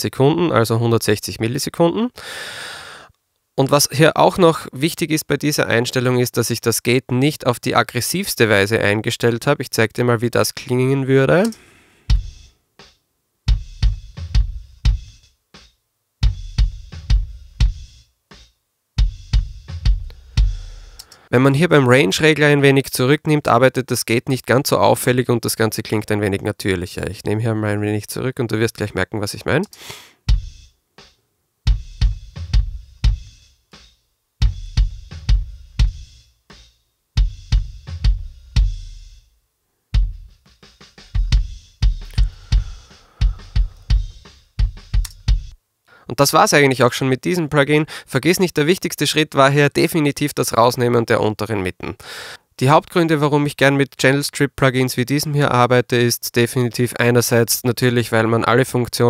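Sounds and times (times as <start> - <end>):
cymbal and snare hiss: 11.4 - 13.0, 17.7 - 21.3, 29.7 - 31.2, 40.3 - 45.6
snare and cymbal bleed: 11.4 - 21.3, 29.7 - 39.3, 40.0 - 45.6
gated kick drum: 12.1 - 21.0, 30.3 - 31.1, 31.7 - 39.2, 40.0 - 45.6
deep bass drum hits: 41.1 - 45.5.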